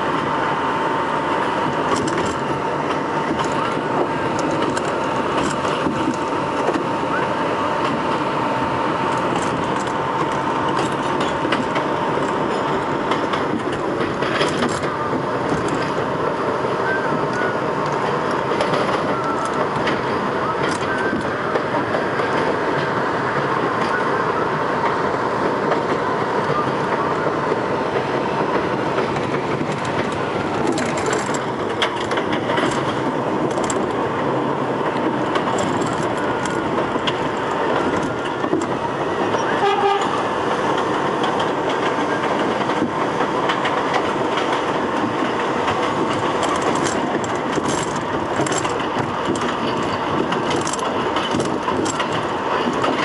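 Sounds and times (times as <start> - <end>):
train wheels rumbling on rail: 0.0 - 53.0
clicks over rail joints: 28.5 - 34.2, 34.8 - 39.4, 40.0 - 53.0
train horn toot: 39.4 - 40.3.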